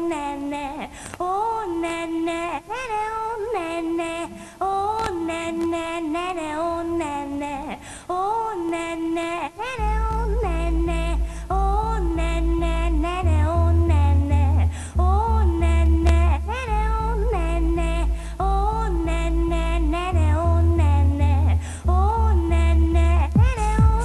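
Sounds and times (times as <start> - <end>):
high voice singing: 0.0 - 24.0
deep pulsing bass line: 9.9 - 24.0.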